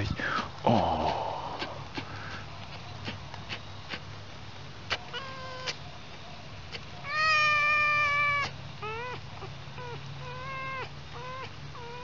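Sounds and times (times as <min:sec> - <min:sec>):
fox whining: 0:04.9 - 0:05.8, 0:06.7 - 0:12.0.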